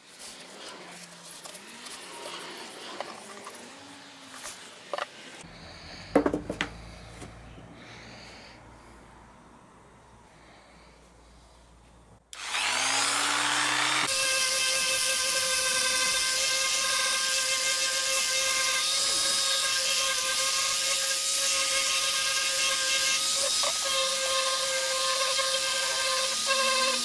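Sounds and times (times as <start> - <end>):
power tool whining: 12.3 - 27.0.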